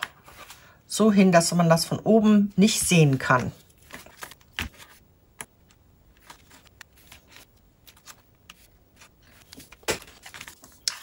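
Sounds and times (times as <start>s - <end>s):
paper rustling: 2.8s - 5.0s, 5.6s - 11.0s.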